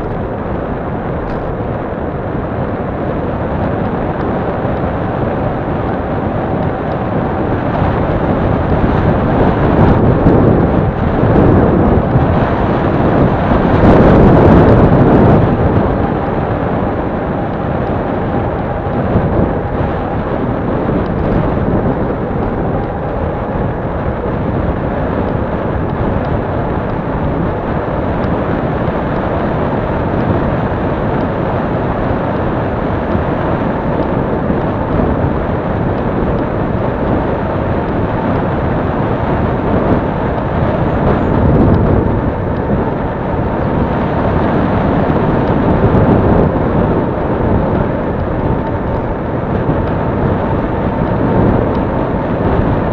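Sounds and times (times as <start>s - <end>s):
bicycle tyre rumble on asphalt: 0.0s - 52.9s
wind buffeting microphone: 0.0s - 52.9s.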